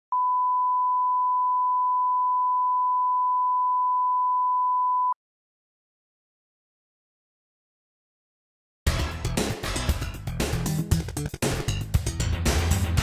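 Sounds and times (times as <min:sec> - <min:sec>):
steady pure test tone beep: 0:00.1 - 0:05.2.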